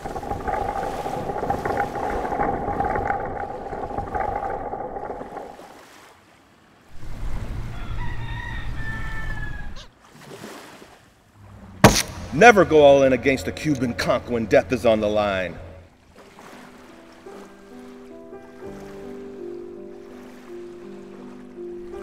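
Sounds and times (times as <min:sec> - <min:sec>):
low wind rumble: 0:00.0 - 0:05.8
rooster crowing: 0:07.6 - 0:09.9.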